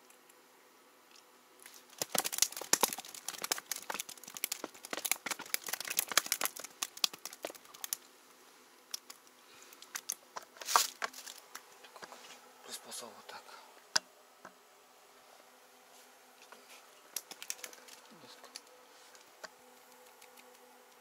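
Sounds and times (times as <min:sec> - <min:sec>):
crinkling crackling rustle: 0:01.1 - 0:12.5, 0:15.9 - 0:21.0.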